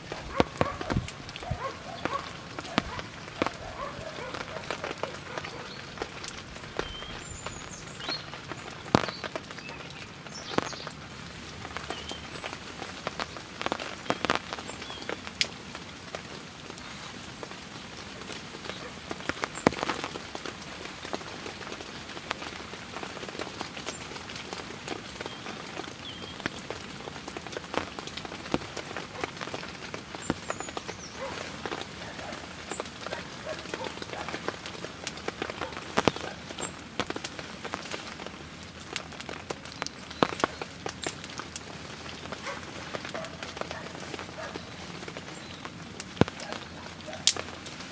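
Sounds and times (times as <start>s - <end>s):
steady rain falling: 0.0s - 47.9s
sharp taps and clicks: 0.1s - 11.0s, 39.0s - 41.7s.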